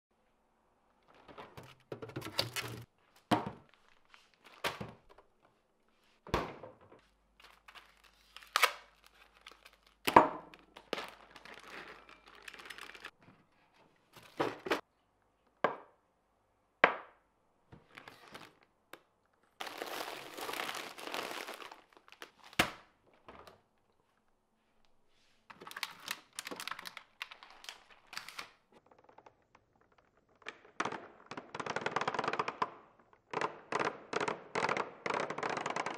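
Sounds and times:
plastic packaging crinkling: 7.4s - 13.1s, 19.6s - 22.7s, 25.5s - 28.6s.

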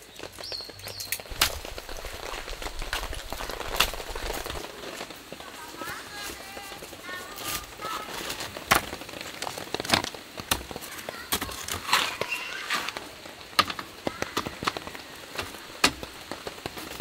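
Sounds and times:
canvas rustling: 1.2s - 17.0s
wooden clicks and knocks: 13.5s - 16.8s.

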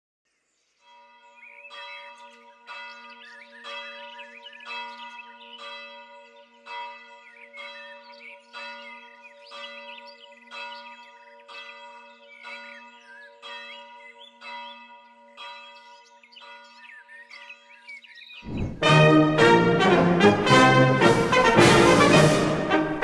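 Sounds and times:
church bell ringing: 0.8s - 17.9s.

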